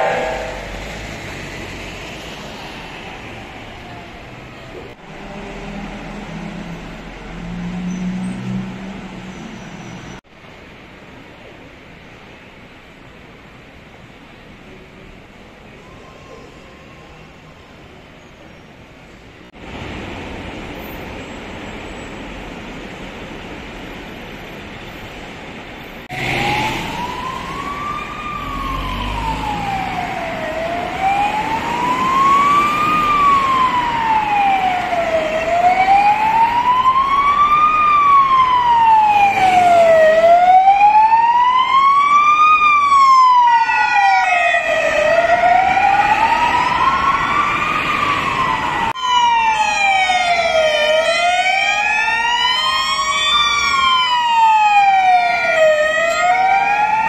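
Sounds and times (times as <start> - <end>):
ambulance siren wailing: 0.0 - 5.6, 26.1 - 57.0
city traffic noise: 0.0 - 57.0.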